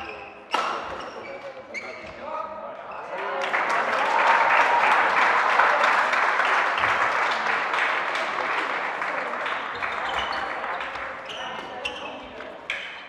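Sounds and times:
spectators applauding: 3.2s - 11.3s.

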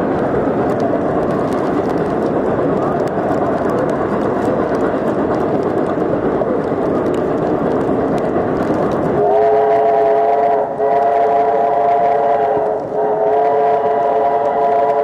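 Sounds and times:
train wheels rumbling on track: 0.0s - 15.0s
steam train whistle: 9.2s - 15.0s.

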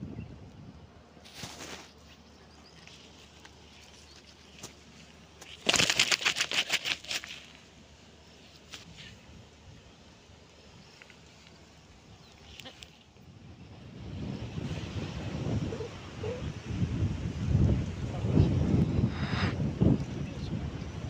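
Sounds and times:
rustle: 1.2s - 13.4s
fish thrashing on sand: 3.3s - 7.7s.

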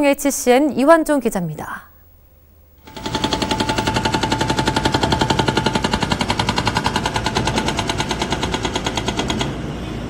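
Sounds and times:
hydraulic breaker hammering pavement: 2.8s - 9.9s.

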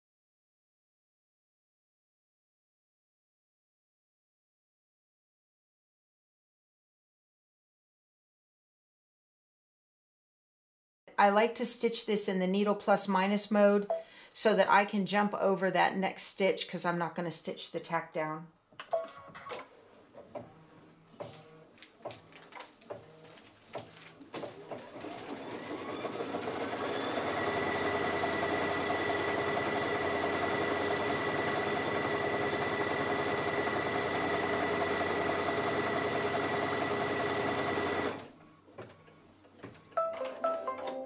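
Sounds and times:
embroidery machine motor whirring: 24.6s - 38.4s.

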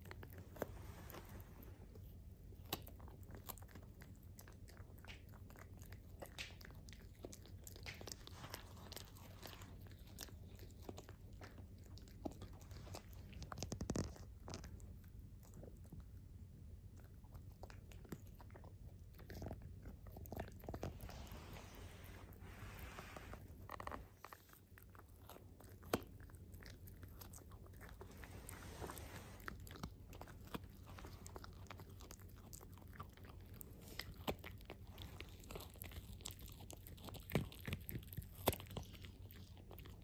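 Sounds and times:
dog chewing crunchy chew: 0.0s - 40.0s
teeth clicking on chew: 2.5s - 20.9s, 29.5s - 40.0s.

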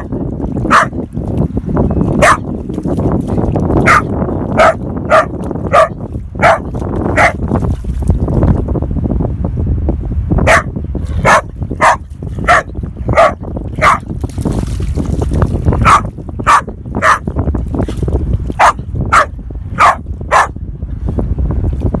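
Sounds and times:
dog barking: 0.7s - 0.9s, 2.2s - 2.4s, 3.8s - 6.6s, 7.2s - 7.4s, 10.4s - 14.0s, 15.8s - 17.2s, 18.6s - 20.6s.

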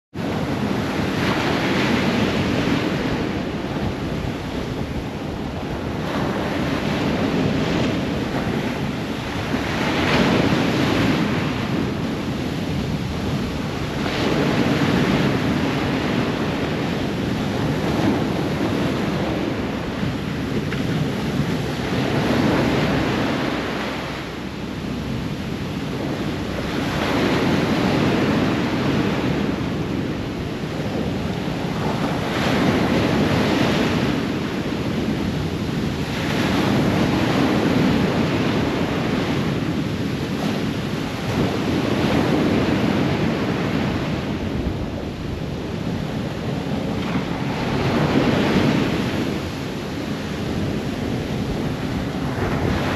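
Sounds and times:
ocean waves breaking on shore: 0.1s - 52.9s
steady low rumble: 17.0s - 32.3s.

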